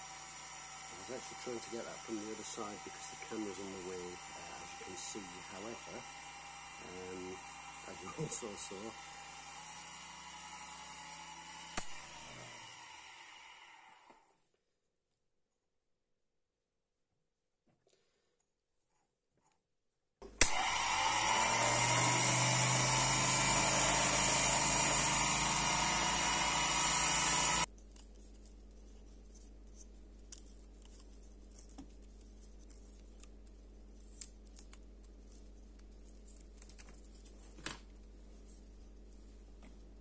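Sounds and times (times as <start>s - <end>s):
lathe motor running: 0.0s - 14.1s, 20.4s - 27.7s.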